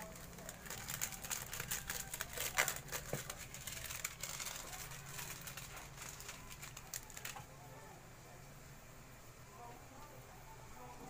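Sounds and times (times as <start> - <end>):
food crackling and popping in pan: 0.0 - 7.5.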